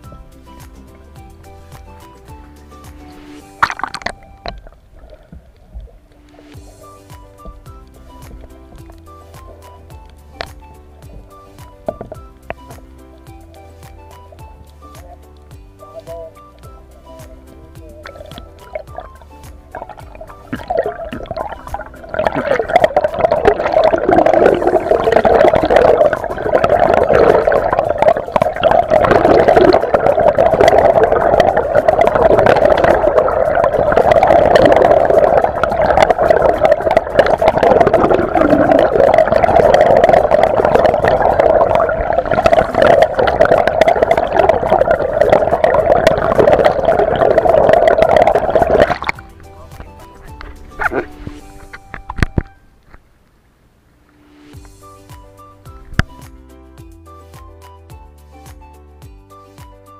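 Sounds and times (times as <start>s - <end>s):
underwater water rushing and gurgling: 0.0s - 15.8s, 16.6s - 52.4s
dense crackling clicks: 2.9s - 15.6s, 18.0s - 54.8s
steady underwater drone: 18.1s - 49.4s.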